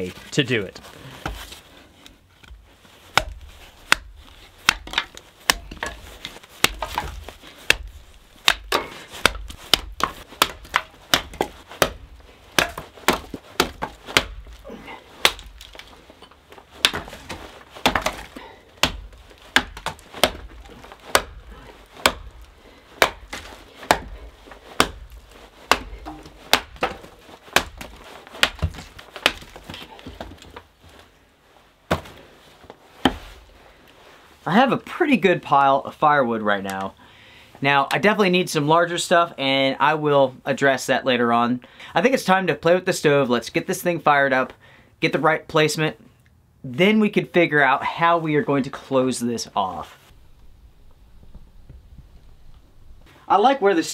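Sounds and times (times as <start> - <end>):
hatchet chopping wood: 2.5 - 14.6, 15.2 - 15.9, 16.8 - 30.5, 33.0 - 33.4.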